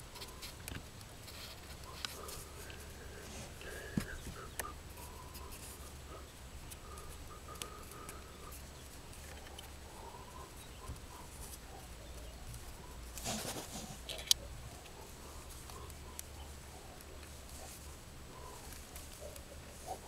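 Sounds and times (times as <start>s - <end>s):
wires rustling and clicking: 0.0s - 20.0s
faint animal calls: 1.7s - 20.0s.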